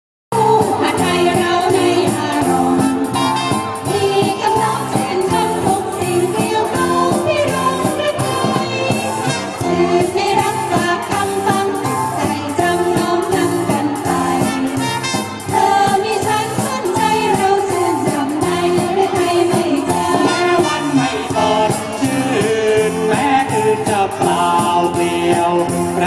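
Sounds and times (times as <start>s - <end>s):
women singing: 0.3s - 25.5s
live band: 0.3s - 26.0s
steady drum beat: 12.6s - 26.0s.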